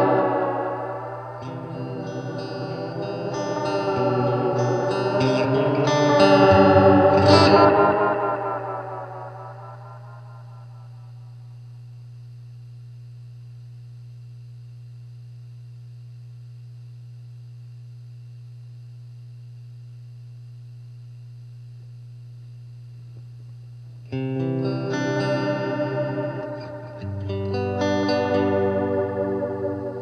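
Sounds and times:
electric guitar with delay: 0:00.0 - 0:11.3, 0:24.1 - 0:30.0
amplifier electrical hum: 0:00.0 - 0:30.0.

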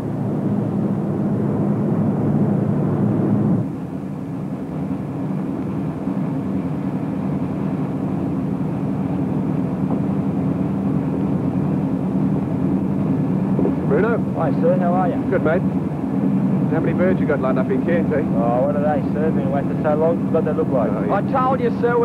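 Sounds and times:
boat diesel engines droning: 0:00.0 - 0:22.0.

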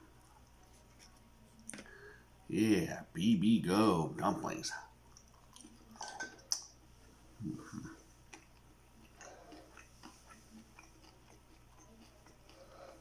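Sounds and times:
person chewing food: 0:05.0 - 0:06.8, 0:07.4 - 0:13.0.

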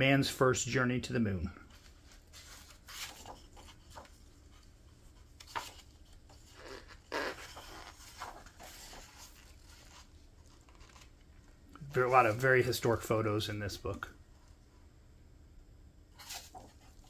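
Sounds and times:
paper rustling: 0:01.6 - 0:14.0, 0:16.2 - 0:17.0.

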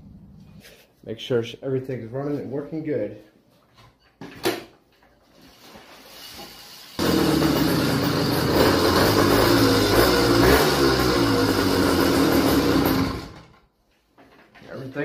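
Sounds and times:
two-stroke engine revving: 0:07.0 - 0:13.6.

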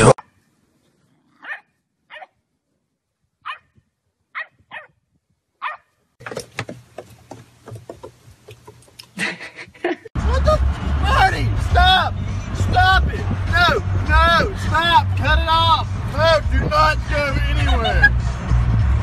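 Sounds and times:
dog yapping: 0:01.4 - 0:02.4, 0:03.4 - 0:03.7, 0:04.4 - 0:04.9, 0:05.6 - 0:05.9.

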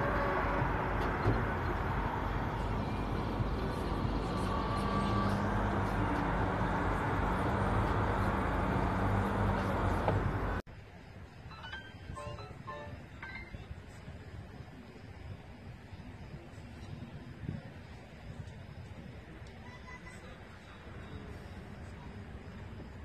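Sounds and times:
vehicle engine running: 0:00.0 - 0:10.6
outdoor noise: 0:00.0 - 0:23.0.

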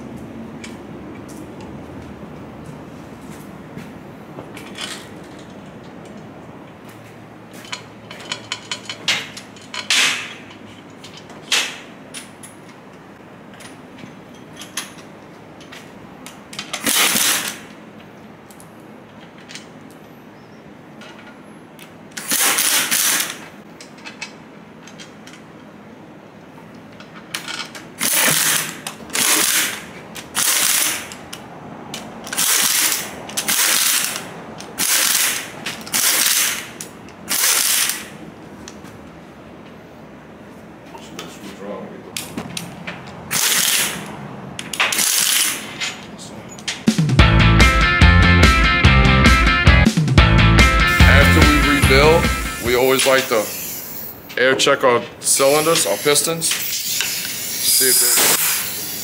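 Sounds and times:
power ratchet whirring: 0:22.2 - 0:23.4, 0:28.0 - 0:31.2, 0:32.3 - 0:38.1, 0:43.3 - 0:44.1, 0:44.8 - 0:45.6, 0:50.9 - 0:54.3, 0:55.4 - 0:59.0.

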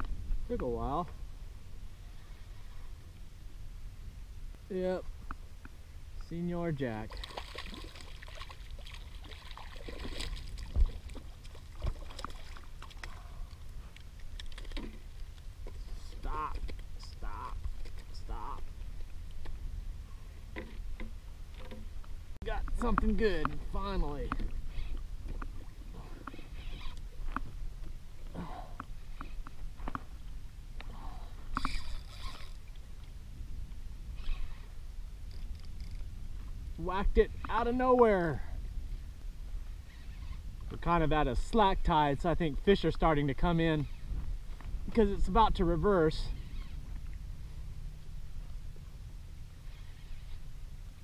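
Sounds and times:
steady low rumble: 0:00.0 - 0:51.0
water lapping against kayak hull: 0:07.1 - 0:33.2
brief squeaks: 0:34.2 - 0:34.7, 0:39.9 - 0:40.4, 0:46.3 - 0:46.8.

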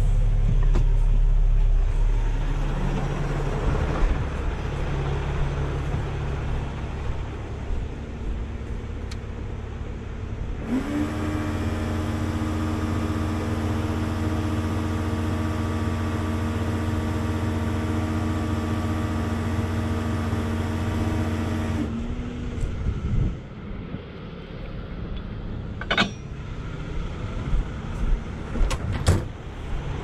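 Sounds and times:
truck engine revving: 0:00.0 - 0:07.8, 0:10.5 - 0:23.3
hydraulic whine: 0:10.6 - 0:27.9
metal clunks: 0:25.8 - 0:26.4.

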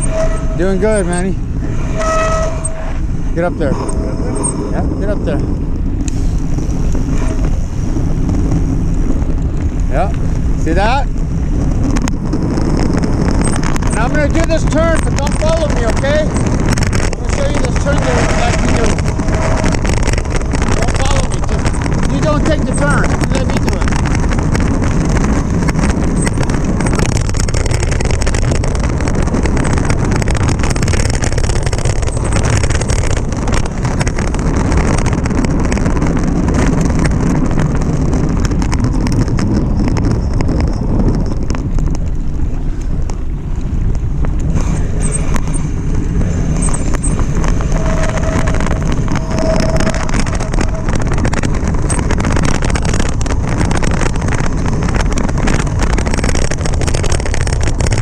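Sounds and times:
bike rattling: 0:00.0 - 0:58.0
tyres rushing on dirt: 0:00.0 - 0:58.0
wind buffeting microphone: 0:00.0 - 0:58.0.

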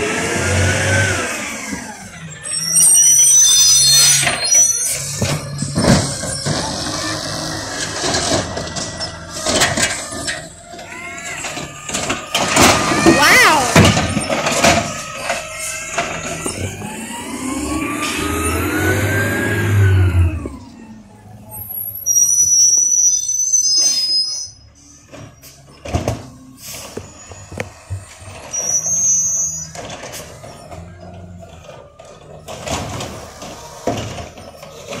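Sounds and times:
garbage truck engine revving: 0:00.0 - 0:22.4, 0:24.8 - 0:35.0
brakes squealing: 0:00.0 - 0:35.0
knocks and clanks from truck body: 0:05.1 - 0:06.8, 0:11.4 - 0:16.8, 0:29.7 - 0:35.0.

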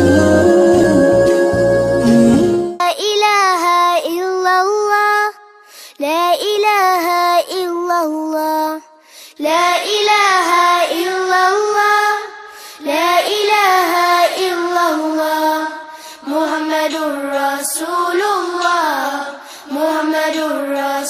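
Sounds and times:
high voice singing: 0:00.0 - 0:21.0.

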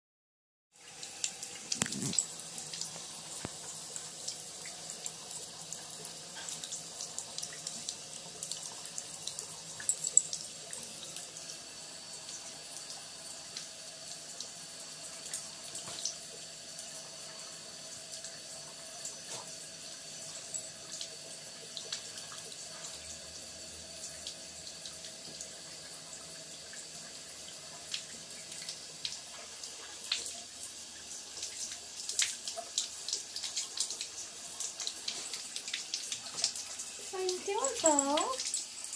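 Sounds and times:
dog lapping water: 0:01.8 - 0:02.3.

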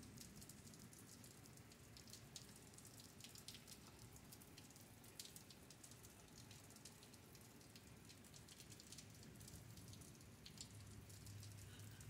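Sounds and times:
light rain falling: 0:00.0 - 0:12.0.

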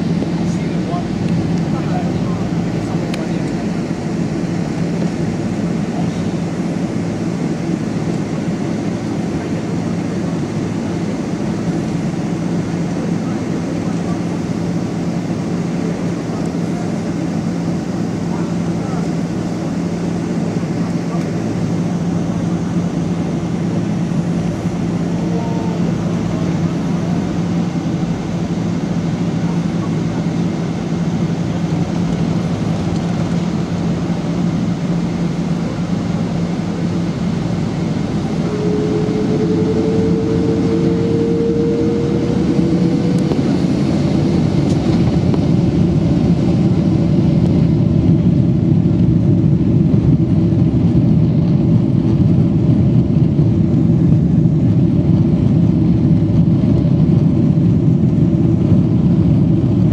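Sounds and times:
jet engines and cabin noise: 0:00.0 - 0:59.9
rising whine: 0:20.4 - 0:48.8.

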